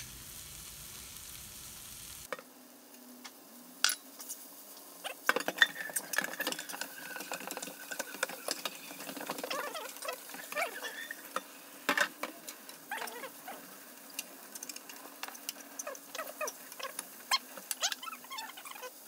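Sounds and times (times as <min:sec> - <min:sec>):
light sizzling: 0:00.0 - 0:19.0
spatula scraping a frying pan: 0:05.1 - 0:11.6.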